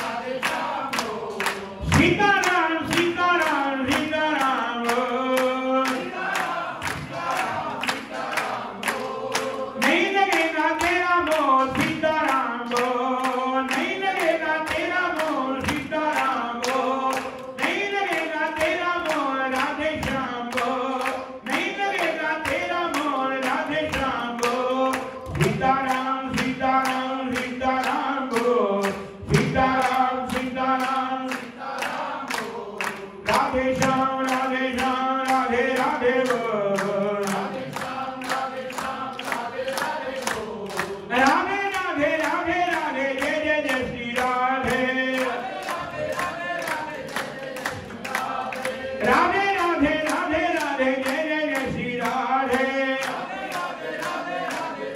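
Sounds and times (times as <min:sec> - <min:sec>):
group singing a devotional chant: 0:00.0 - 0:54.9
steady rhythmic beat: 0:00.0 - 0:54.9.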